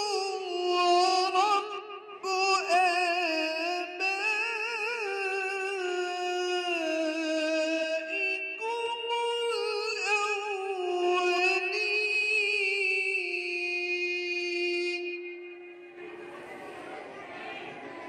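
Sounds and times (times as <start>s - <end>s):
person chanting melodically: 0.0s - 18.0s.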